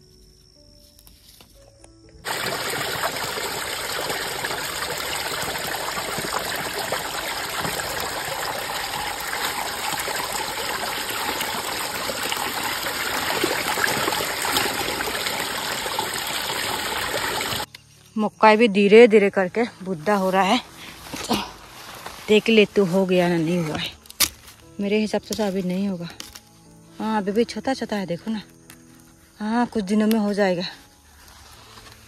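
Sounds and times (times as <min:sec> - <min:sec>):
leafy greens being washed: 0:02.2 - 0:17.7
water pouring into a metal basin: 0:02.2 - 0:17.7.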